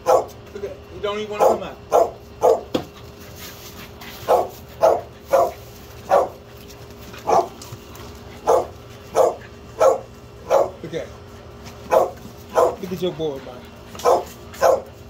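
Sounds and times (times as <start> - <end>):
puppy barking: 0.0 - 0.4, 1.3 - 2.8, 4.2 - 6.4, 7.2 - 7.6, 8.4 - 10.8, 11.9 - 12.9, 14.0 - 15.0.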